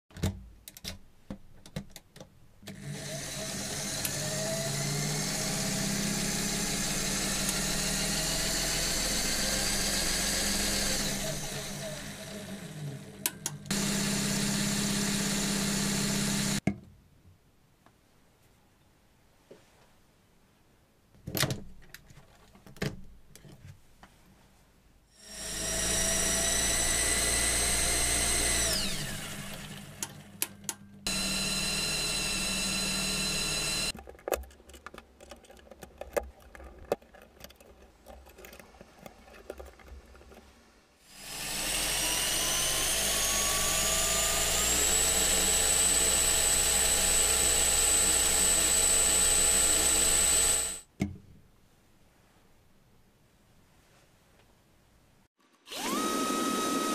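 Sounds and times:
electric motors whining: 2.7s - 16.6s, 25.2s - 30.0s, 31.1s - 33.9s, 41.1s - 50.8s, 55.7s - 56.9s.

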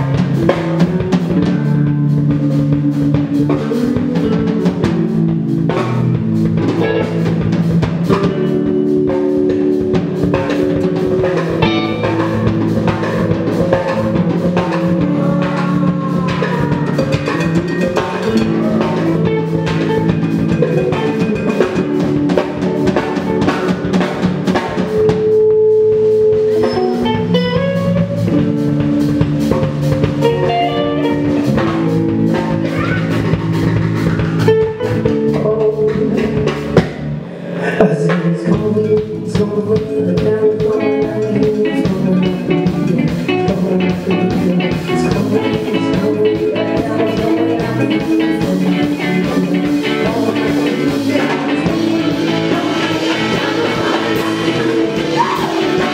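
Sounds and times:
drum kit beating: 0.0s - 55.9s
electric guitars playing chords: 0.0s - 55.9s.

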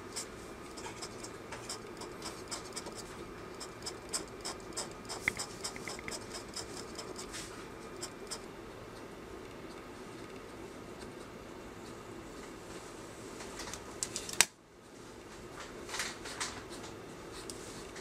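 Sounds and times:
craft knife scratching paper: 0.1s - 8.4s.

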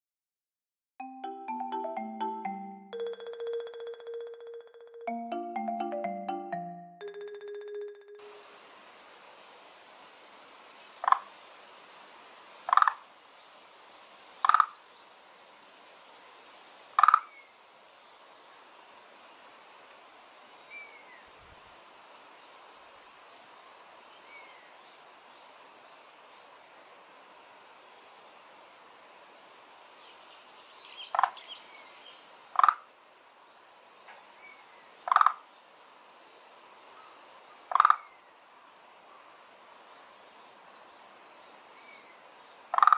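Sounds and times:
frog croaking: 12.7s - 13.0s, 14.4s - 14.8s, 17.0s - 17.3s, 32.6s - 32.8s, 35.1s - 35.4s, 37.7s - 38.0s.

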